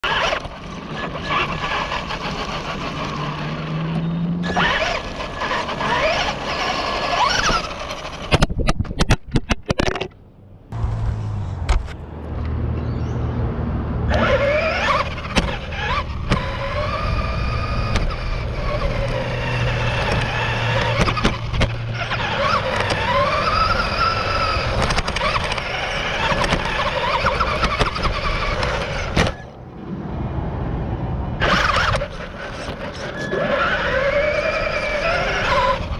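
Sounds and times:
rc car motor whining: 0.0s - 8.4s, 14.1s - 29.5s, 31.4s - 35.9s
tyre and chassis noise: 0.0s - 35.9s.

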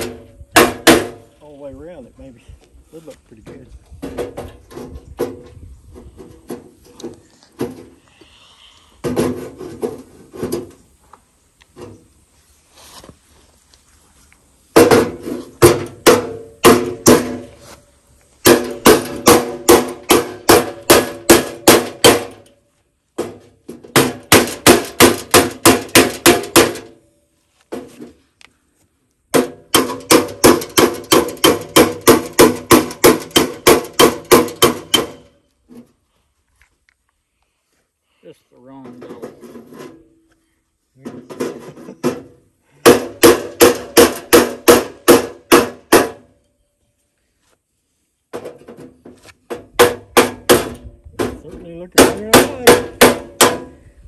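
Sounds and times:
hammer beating sheet metal: 0.0s - 1.2s, 14.7s - 17.5s, 18.4s - 22.5s, 23.2s - 27.0s, 29.3s - 35.4s, 41.3s - 46.3s, 49.5s - 53.8s.

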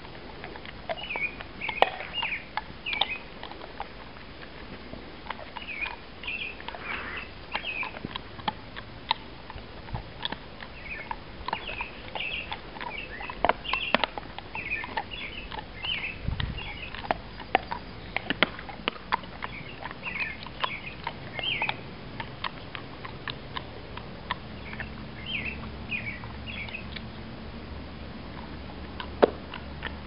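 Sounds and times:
birds chirping: 0.0s - 27.3s
dogs chewing and crunching: 0.0s - 30.0s.

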